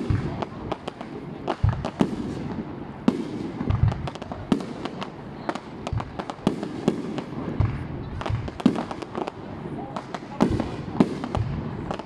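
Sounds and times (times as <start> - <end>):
fireworks bangs and crackles: 0.0 - 12.0.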